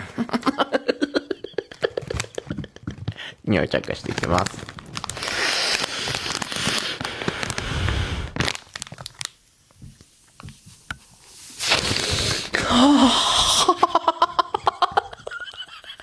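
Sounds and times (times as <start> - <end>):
burst of laughter: 0.1 - 2.8
plastic pouch crinkling: 1.5 - 10.4
deep sniffs: 5.2 - 8.4, 11.6 - 12.6.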